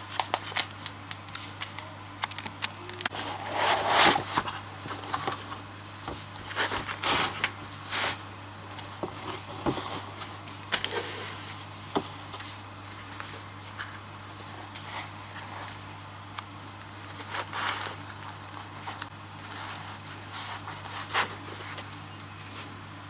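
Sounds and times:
steady low hum: 0.0s - 23.0s
packaging rustling and scraping: 2.9s - 8.2s, 17.0s - 22.7s.

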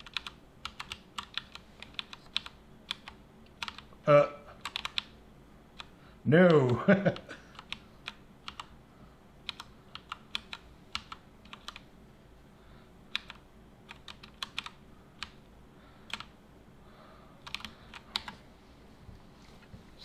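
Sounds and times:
computer keyboard keys clicking: 0.0s - 3.9s, 4.6s - 5.1s, 6.5s - 8.7s, 9.4s - 11.8s, 13.1s - 15.4s, 16.1s - 16.3s, 17.4s - 18.4s.

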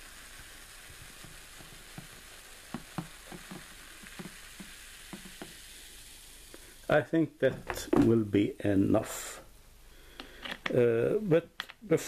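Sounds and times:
bubbles popping and crackling: 0.0s - 6.1s
soda pouring into a glass: 0.0s - 9.4s
soda fizzing: 0.0s - 12.0s.

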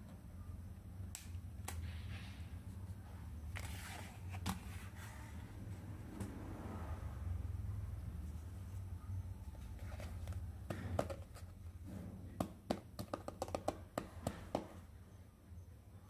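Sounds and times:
low steady hum: 0.0s - 13.0s
toy pieces clicking and tapping: 12.7s - 14.4s.

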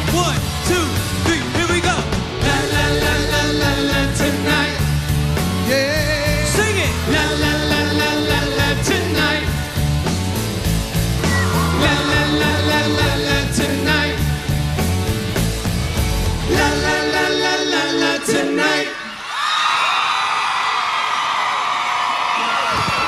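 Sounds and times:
band with strong beat: 0.0s - 18.5s
male vocal group singing pop song: 0.7s - 9.8s, 11.4s - 14.4s, 16.4s - 19.2s
crowd screaming and cheering: 11.2s - 12.5s, 18.9s - 23.0s.

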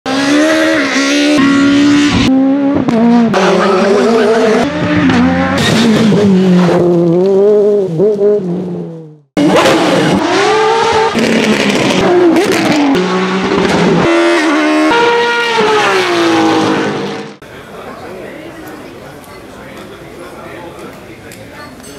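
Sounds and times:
rally car engine revving: 0.1s - 17.4s
race car engines revving: 0.1s - 17.5s.

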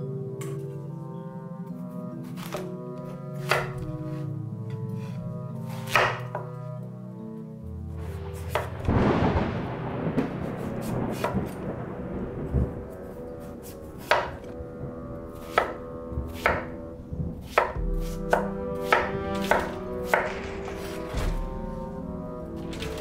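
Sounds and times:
knife slicing pumpkin: 5.0s - 6.4s, 17.4s - 21.5s
knife chopping onto wooden board: 5.8s - 6.5s, 15.5s - 16.7s, 17.5s - 21.4s.

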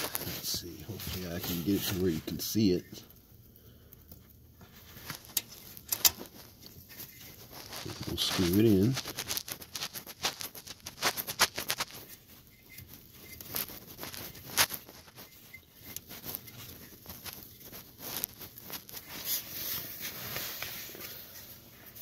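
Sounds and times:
glove rustling: 4.7s - 22.0s.

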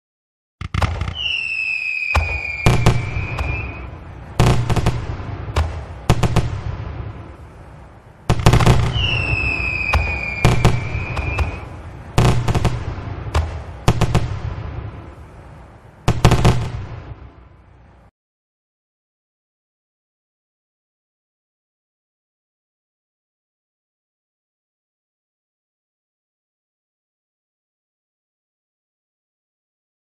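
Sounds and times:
firework bangs and booms: 0.6s - 17.2s
firework whistle falling in pitch: 0.9s - 3.9s, 8.8s - 11.7s.

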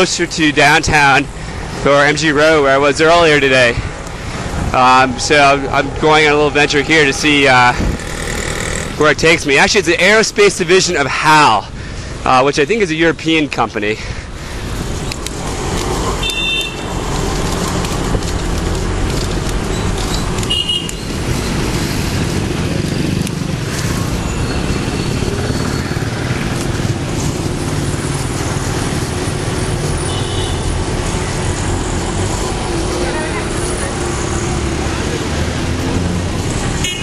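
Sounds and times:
city traffic rumble: 0.0s - 37.0s
vehicle horn toots: 16.2s - 17.0s, 20.5s - 21.0s, 30.0s - 30.8s, 36.8s - 37.0s.

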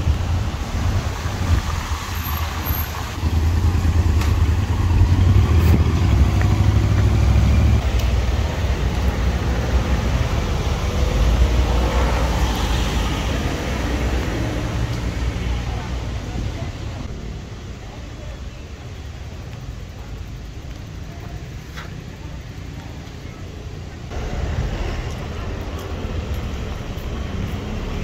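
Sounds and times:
wind buffeting microphone: 0.0s - 7.8s
passing road traffic: 0.0s - 28.0s.

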